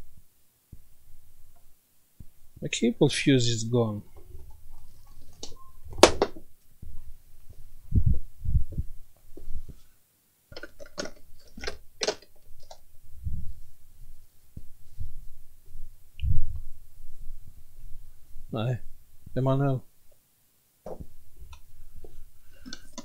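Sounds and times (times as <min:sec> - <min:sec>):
dull thumps: 0:20.8 - 0:22.2.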